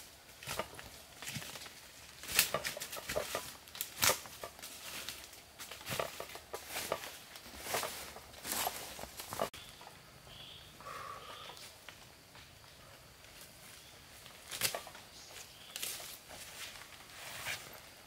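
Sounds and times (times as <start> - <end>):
footsteps crunching dry leaves: 0.0 - 9.6, 13.6 - 18.0
twigs snapping: 0.4 - 7.0, 14.3 - 15.0.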